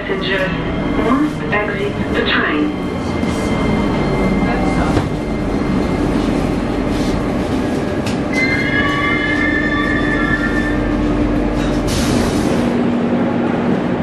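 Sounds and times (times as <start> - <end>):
metro train rumble and hum: 0.0 - 14.0
high multi-tone squeal: 8.3 - 11.2.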